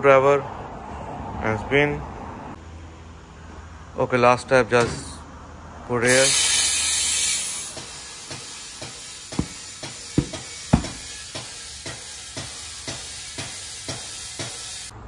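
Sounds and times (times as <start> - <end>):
compressed air hissing: 6.1 - 11.2.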